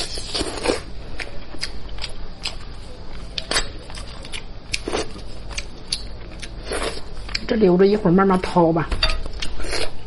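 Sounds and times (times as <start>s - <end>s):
chewing: 0.0s - 7.5s.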